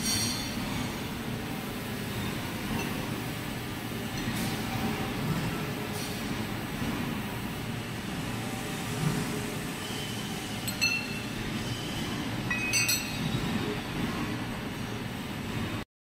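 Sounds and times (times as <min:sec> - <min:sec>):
low machine-shop rumble: 0:00.0 - 0:15.9
metallic clinks of tools on lathe: 0:10.6 - 0:11.3, 0:12.5 - 0:13.4.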